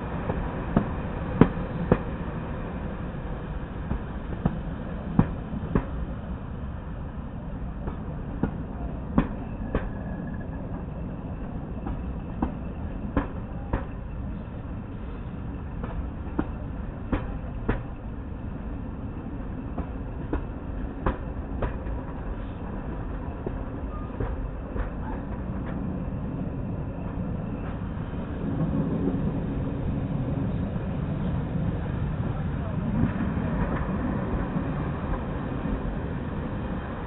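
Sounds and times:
low rumble of train coaches: 0.0 - 37.0
train wheels clicking over rail joints: 3.8 - 6.0, 7.8 - 10.1, 11.8 - 14.0, 14.9 - 18.0, 19.7 - 25.9.

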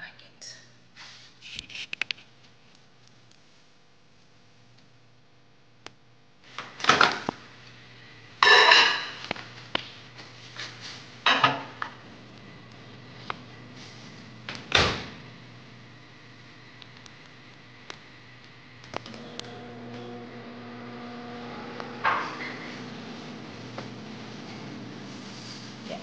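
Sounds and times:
dish clattering in microwave: 8.4 - 9.3, 11.3 - 11.8.

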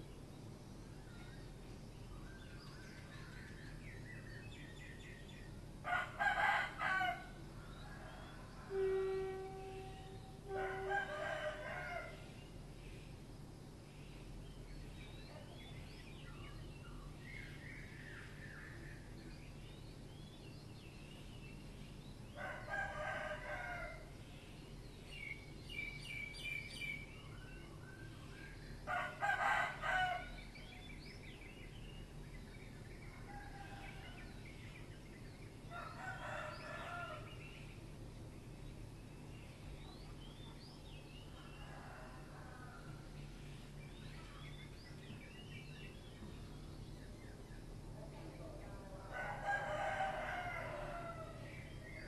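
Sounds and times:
steady low hum: 0.0 - 52.0
rooster crowing: 5.8 - 12.3, 22.4 - 24.2, 28.9 - 30.6, 33.2 - 34.3, 35.7 - 37.5, 41.4 - 43.0, 49.1 - 51.6.

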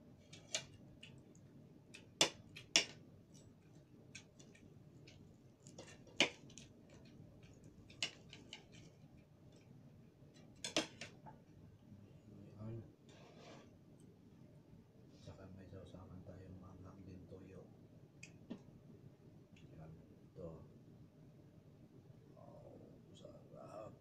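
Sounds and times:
knife and fork scraping plate: 13.1 - 13.7.

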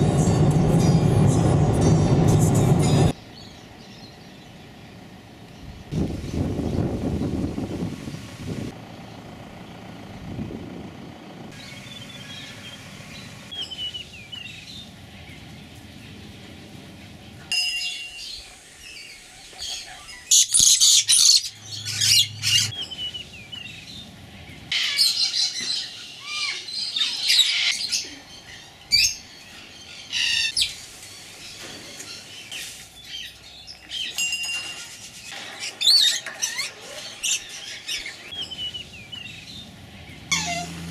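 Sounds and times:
parrots screeching and squawking: 19.6 - 22.7, 24.7 - 28.0, 30.1 - 30.8, 35.4 - 38.3, 40.3 - 40.9.

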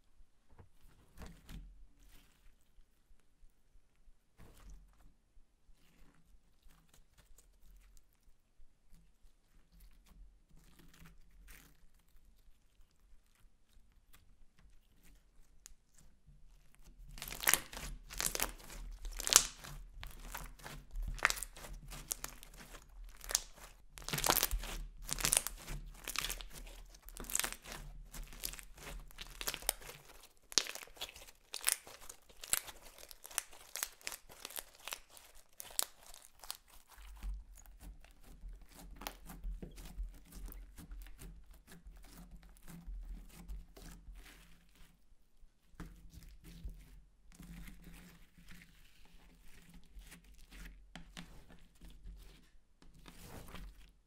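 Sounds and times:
sticky slime crackles and pops: 17.1 - 39.3.

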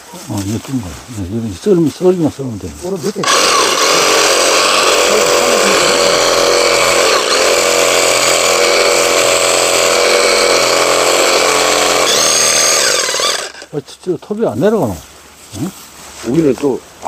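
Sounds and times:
reciprocating saw cutting wood: 3.2 - 13.7.

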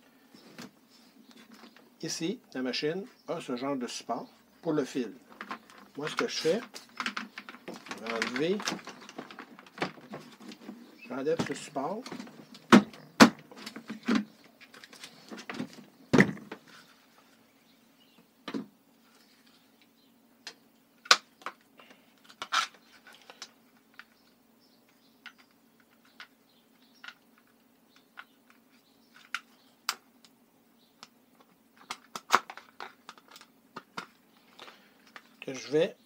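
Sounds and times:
plastic parts clicking: 5.3 - 10.6, 31.0 - 35.3.

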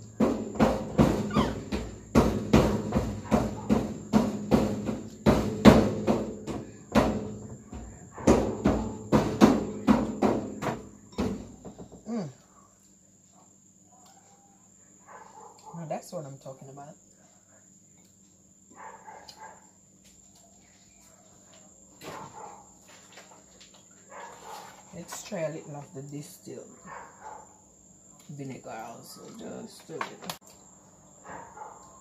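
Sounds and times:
rhythmic percussive thumps: 0.0 - 11.4
faint cricket trill: 0.0 - 32.0.

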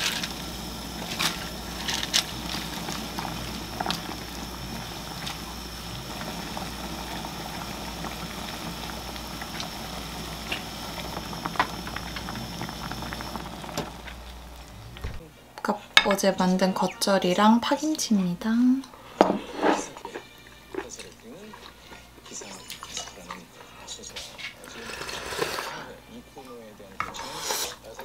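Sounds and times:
broth bubbling in a pot: 0.0 - 15.0.

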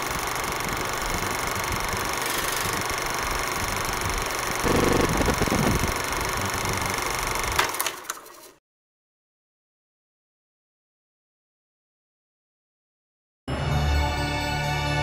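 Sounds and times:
film projector running: 0.0 - 8.6.

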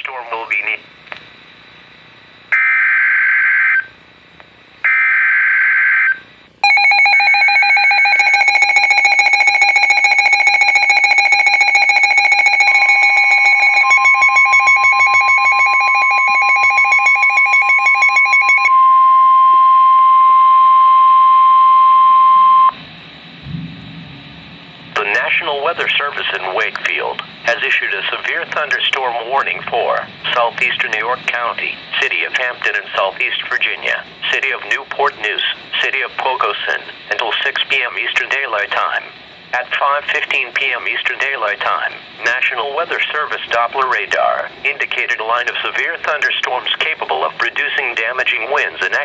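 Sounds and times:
steady warning alarm tone: 1.5 - 4.1, 4.8 - 39.0
rapid electronic alarm beeps: 2.6 - 4.0, 4.9 - 22.8
low thump: 23.4 - 25.0.

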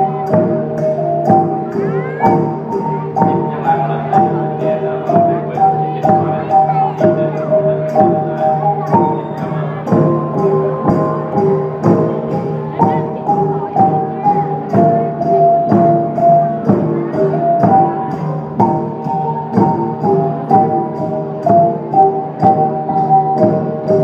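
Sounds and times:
hanging gongs struck in a beat: 0.0 - 24.0.

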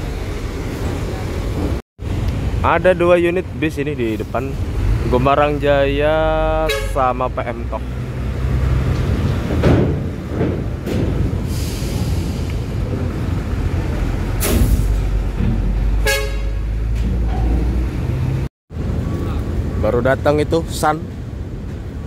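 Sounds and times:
diesel engines idling: 0.0 - 8.6
horn toot: 6.6 - 7.2, 16.0 - 16.8
air hiss: 11.4 - 12.6.

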